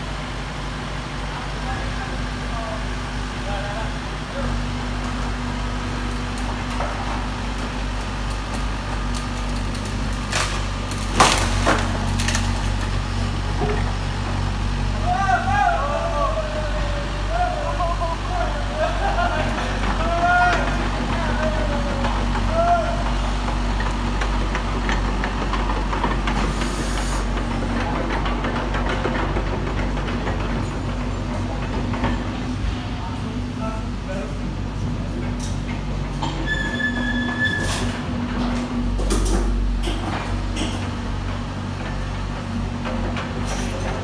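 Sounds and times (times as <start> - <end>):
diesel engine running: 0.0 - 44.0
tracks knocking and cracking: 19.4 - 26.5, 27.3 - 32.5.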